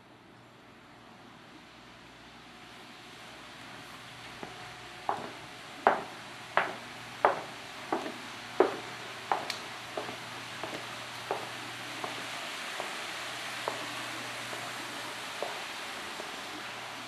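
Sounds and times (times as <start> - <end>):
steady hiss: 0.6 - 17.0
footsteps on tiled floor: 4.3 - 16.6.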